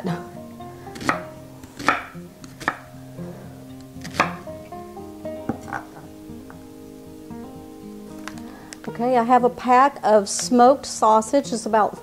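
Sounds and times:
soft background music: 0.0 - 12.0
knife chopping on wooden board: 0.9 - 2.9, 4.0 - 4.5, 5.5 - 6.0.

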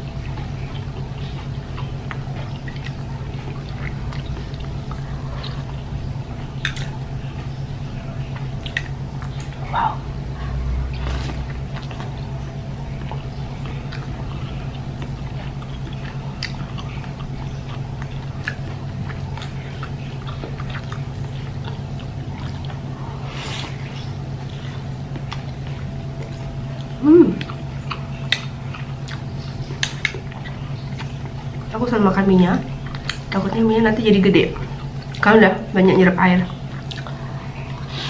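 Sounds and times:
chewing and biting food: 0.0 - 38.0
steady low hum: 0.0 - 38.0.

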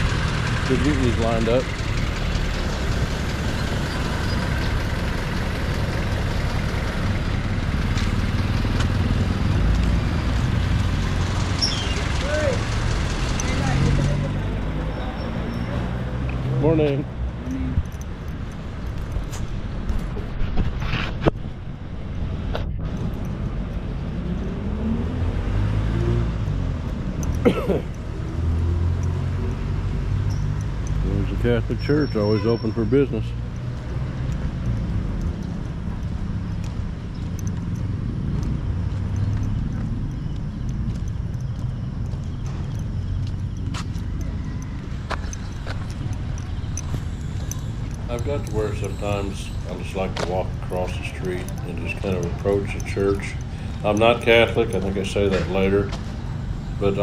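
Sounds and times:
vehicle engine idling: 0.0 - 20.1, 33.1 - 57.0.

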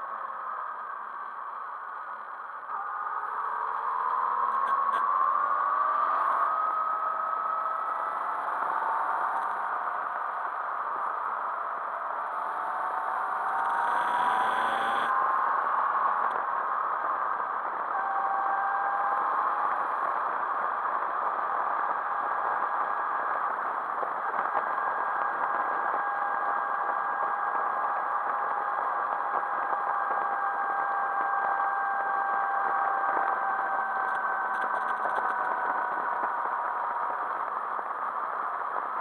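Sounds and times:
motorcycle engine drone: 11.5 - 16.1.

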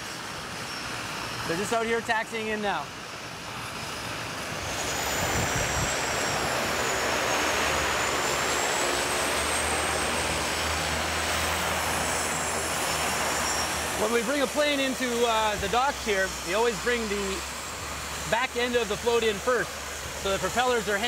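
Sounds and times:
turboprop engines roaring: 0.0 - 21.0.

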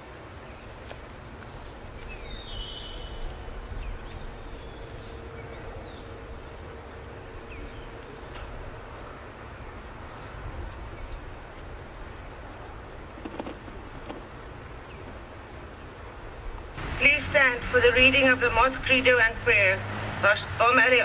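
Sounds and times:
wind rumble on microphone: 0.1 - 20.3
bird chirps: 2.0 - 6.8.

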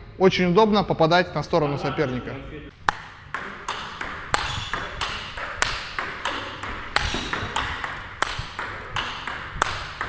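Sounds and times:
ping-pong ball clicks: 2.8 - 10.0.

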